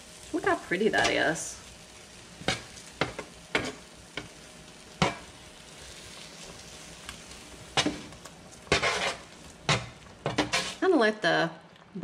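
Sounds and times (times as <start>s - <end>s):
metal spatula scraping baking sheet: 7.7s - 10.8s.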